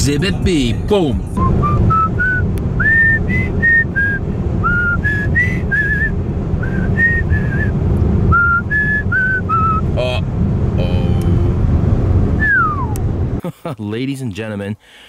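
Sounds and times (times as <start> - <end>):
car road noise: 0.0 - 13.4
person whistling a tune: 1.4 - 7.7, 8.3 - 9.8, 12.4 - 13.0.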